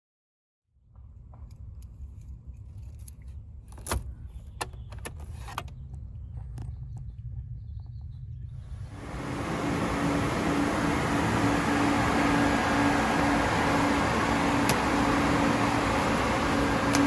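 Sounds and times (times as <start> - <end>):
steady low rumble: 5.8 - 17.0
ignition lock clicks: 14.6 - 15.3, 16.8 - 17.0.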